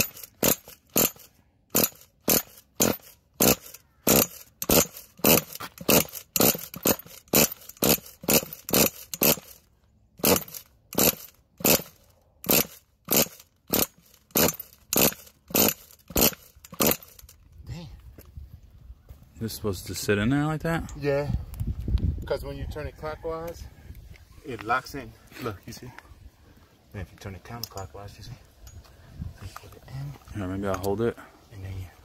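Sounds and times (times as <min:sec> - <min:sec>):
engine starter cranking: 0:00.0 - 0:09.6, 0:10.2 - 0:17.3.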